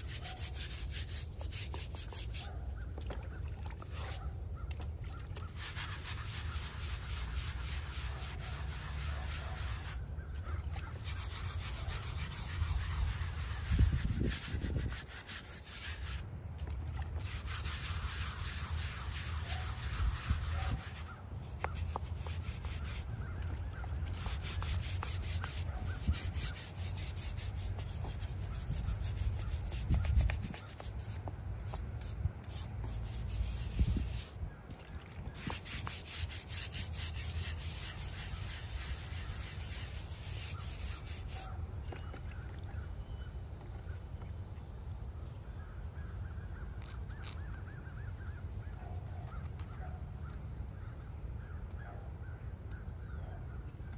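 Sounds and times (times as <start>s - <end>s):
brush scrubbing stone: 0.0s - 2.6s, 3.8s - 4.2s, 5.4s - 16.3s, 17.1s - 23.1s, 23.9s - 34.4s, 35.3s - 41.5s.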